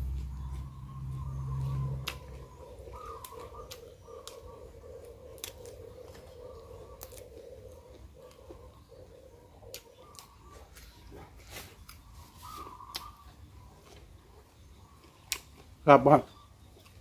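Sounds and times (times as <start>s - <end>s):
chewing and crunching vegetables: 0.0s - 17.0s.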